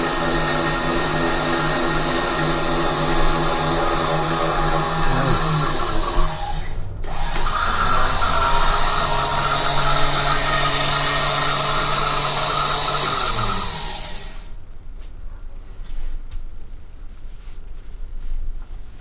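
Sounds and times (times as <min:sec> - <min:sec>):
motor and gear whine: 0:00.0 - 0:14.5.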